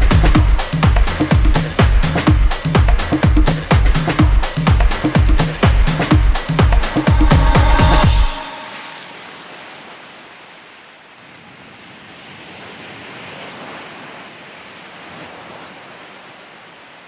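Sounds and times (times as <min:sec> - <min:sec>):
steady rushing noise: 0:00.0 - 0:09.8.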